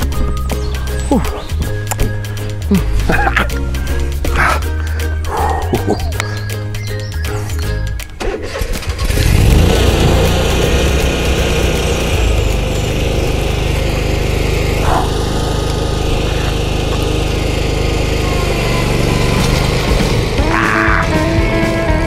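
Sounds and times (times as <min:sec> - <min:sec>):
small engine starting and running: 0:08.1 - 0:22.0.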